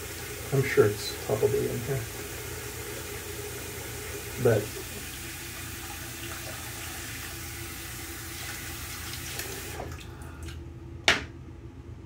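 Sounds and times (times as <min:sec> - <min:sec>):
water running from tap: 0:00.0 - 0:10.6.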